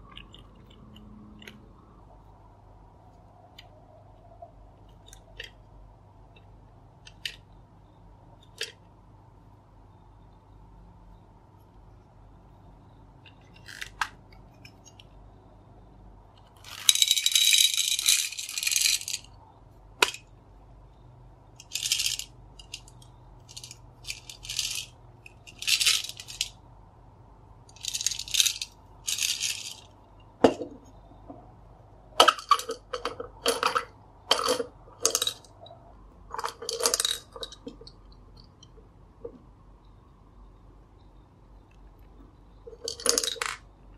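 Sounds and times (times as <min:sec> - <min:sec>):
candy balls rattling in plastic toy: 0:16.6 - 0:19.3, 0:21.6 - 0:26.6, 0:27.7 - 0:29.9, 0:32.2 - 0:35.6, 0:36.3 - 0:38.0, 0:42.7 - 0:43.7.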